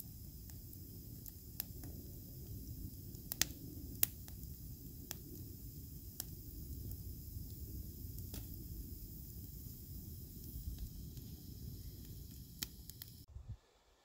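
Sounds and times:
campfire crackling and popping: 0.0 - 13.3
low steady fire rumble: 0.0 - 13.7.

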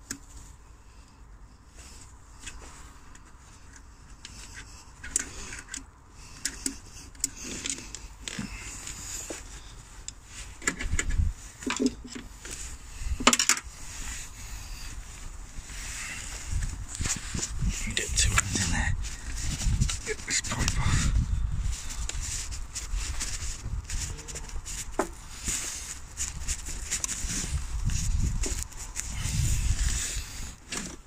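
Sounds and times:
plastic and metal parts handled: 2.4 - 14.3.

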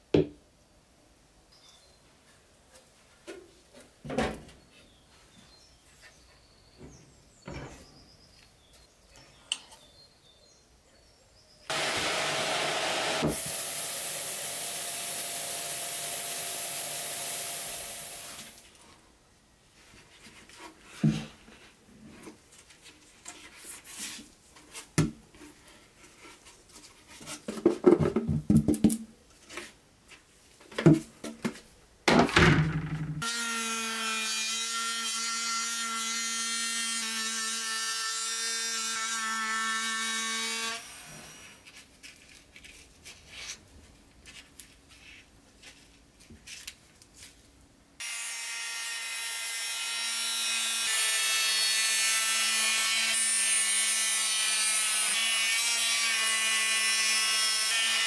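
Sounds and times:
rotary tool whine cutting plastic: 11.7 - 18.6.

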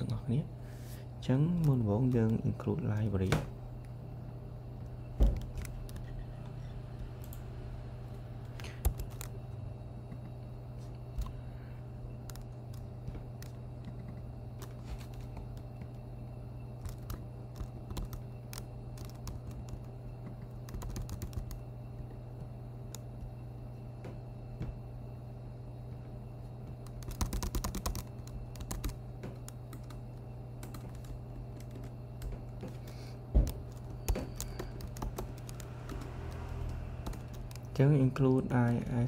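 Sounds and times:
steady low hum: 0.0 - 39.0
typing on a computer keyboard: 5.2 - 6.2, 8.5 - 9.4, 12.2 - 16.0, 16.8 - 21.6, 26.8 - 37.8.

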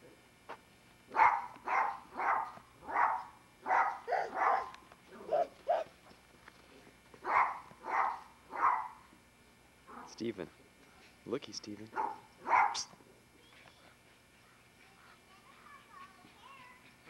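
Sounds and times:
dog barking: 1.1 - 5.9, 7.2 - 9.1, 9.9 - 10.2, 11.9 - 12.9.

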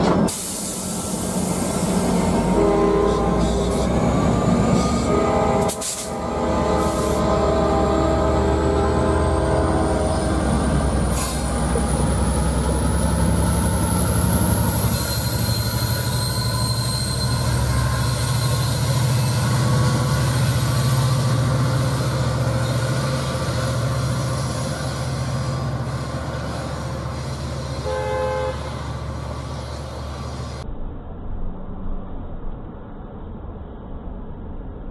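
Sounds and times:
train cars rolling past: 0.0 - 30.6
diesel locomotive engine rumbling: 0.0 - 34.9
train horn toot: 1.8 - 11.8, 14.6 - 29.8.

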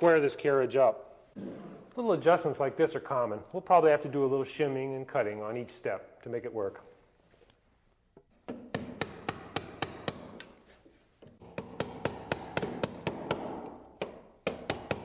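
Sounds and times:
hammer striking wood chisel: 8.5 - 10.5, 11.2 - 15.0.

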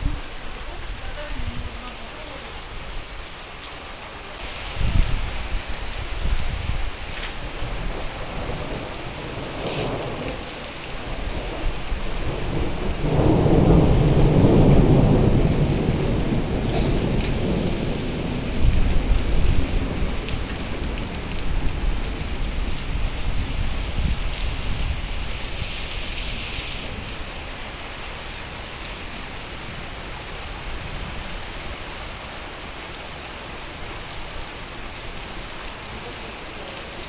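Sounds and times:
heavy rain pouring: 0.0 - 37.0
thunder rumbling: 4.6 - 27.5.

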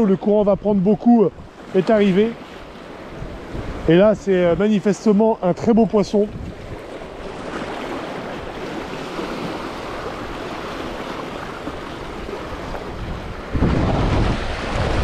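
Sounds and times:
sea surf washing on shore: 0.0 - 15.0
wind noise on microphone: 3.1 - 4.6, 6.2 - 6.9, 12.1 - 15.0.

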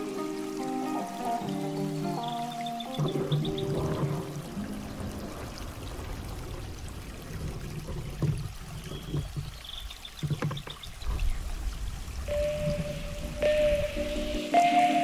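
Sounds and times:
water trickling and pouring: 0.0 - 15.0
paddle knocking on kayak: 3.0 - 4.4, 10.2 - 10.8.

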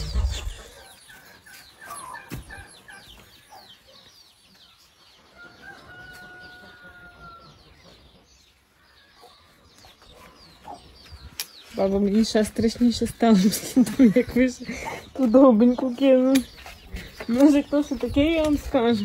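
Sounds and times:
chickens clucking: 0.0 - 19.0
rooster crowing: 5.4 - 7.6.

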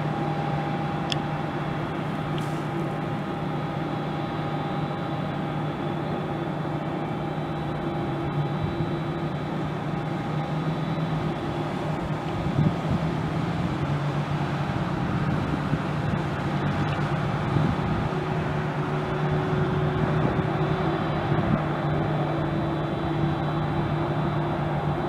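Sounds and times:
faint high whine: 0.0 - 12.6
distant jet engines: 0.0 - 25.0.

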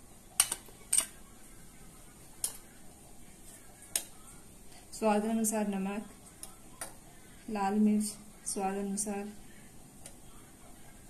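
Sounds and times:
kitchen utensils clicking: 0.4 - 1.2.

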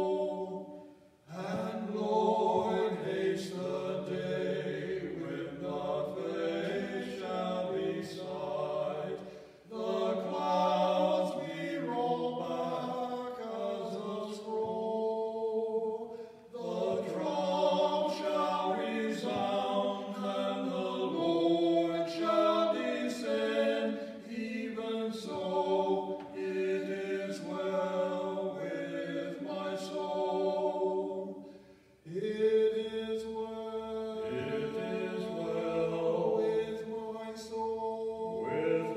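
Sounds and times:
men singing a hymn: 0.0 - 38.9.

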